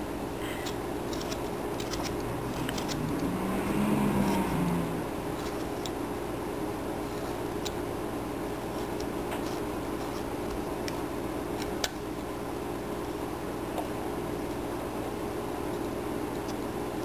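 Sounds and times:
steady hum: 0.0 - 17.0
vehicle passing: 2.2 - 5.4.

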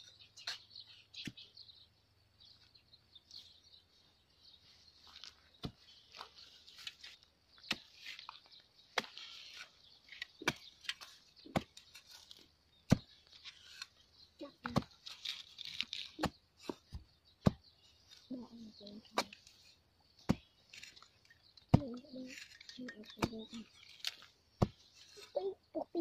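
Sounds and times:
digging tool striking stony soil: 5.2 - 14.0, 14.6 - 25.3.

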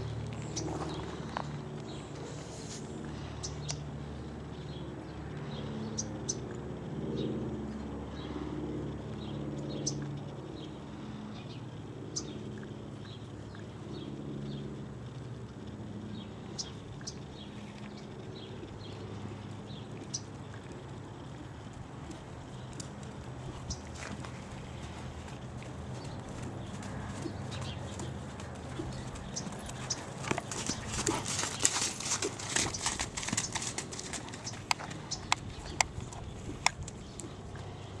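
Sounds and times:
small birds chirping: 0.0 - 6.4, 9.1 - 14.8, 15.4 - 38.0
low outdoor background: 0.0 - 38.0
horse trotting on sand: 21.7 - 37.6.

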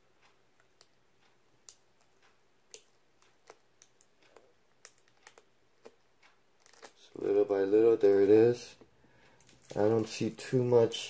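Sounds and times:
tape peeling off cardboard: 6.6 - 7.0.

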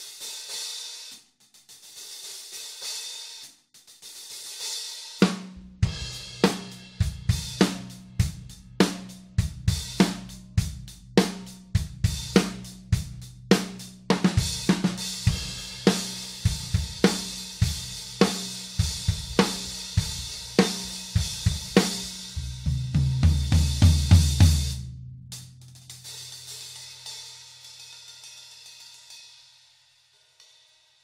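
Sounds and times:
hi-hat: 0.0 - 22.7
drum kit groove: 0.0 - 29.5
low drum strokes: 5.3 - 26.7.

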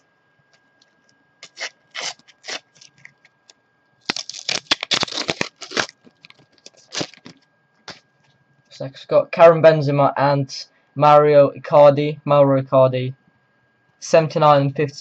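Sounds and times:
foil packet crinkling and tearing: 1.4 - 3.3, 4.0 - 8.0.

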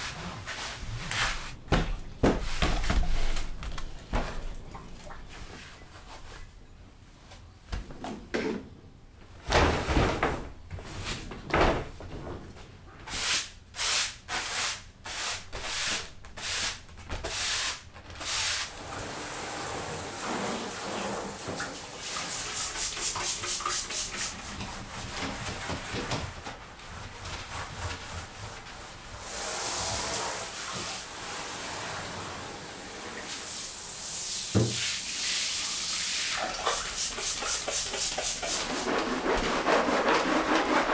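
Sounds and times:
shower spraying on tiles: 13.2 - 24.9, 29.2 - 39.1.

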